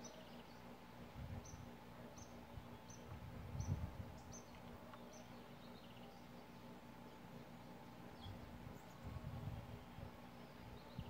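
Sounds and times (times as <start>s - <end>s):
small bird chirping: 1.4s - 7.2s.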